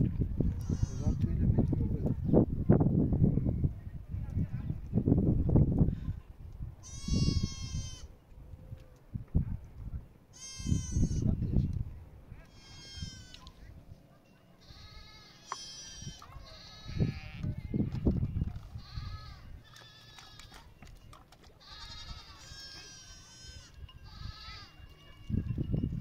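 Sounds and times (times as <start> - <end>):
goats or sheep bleating: 0.6 - 1.3, 6.8 - 8.1, 10.3 - 11.4, 12.5 - 13.5, 14.6 - 18.0, 18.8 - 20.7, 21.6 - 24.9.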